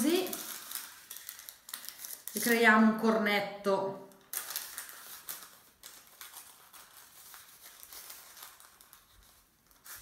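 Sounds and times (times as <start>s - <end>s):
parchment paper crinkling: 0.0s - 2.9s, 4.1s - 10.0s.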